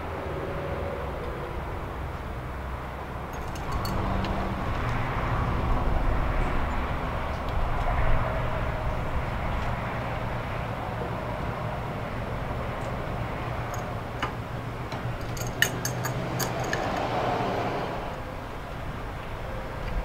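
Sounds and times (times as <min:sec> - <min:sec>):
metallic clicks of hose fittings: 0:03.3 - 0:05.0, 0:13.6 - 0:17.1.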